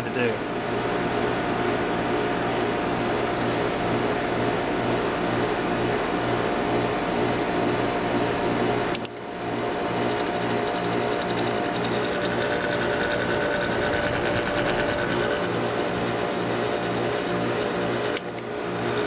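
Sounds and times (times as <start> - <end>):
heat pump unit humming: 0.0 - 19.0
sharp click: 8.9 - 9.2, 18.1 - 18.5.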